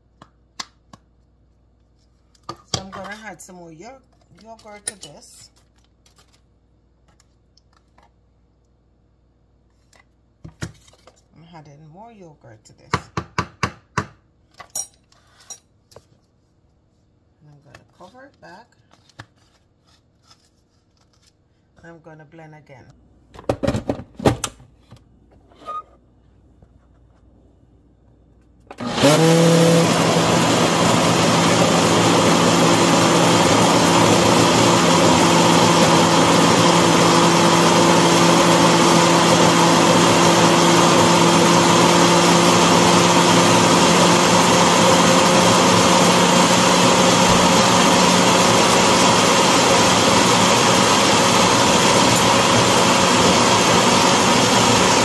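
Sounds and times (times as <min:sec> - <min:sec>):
blender motor humming: 0:28.7 - 0:55.0.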